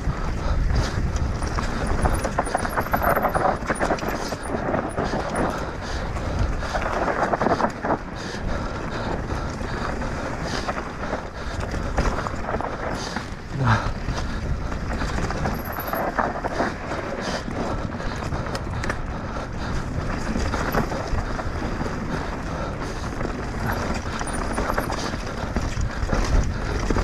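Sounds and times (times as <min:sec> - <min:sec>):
wind buffeting microphone: 0:00.0 - 0:27.0
bike clattering over rocks: 0:00.9 - 0:05.6, 0:10.4 - 0:17.0, 0:23.2 - 0:27.0.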